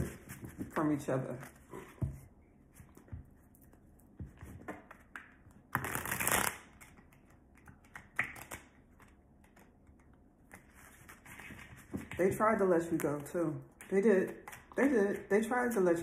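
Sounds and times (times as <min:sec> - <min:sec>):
cards being shuffled: 0:04.4 - 0:15.3.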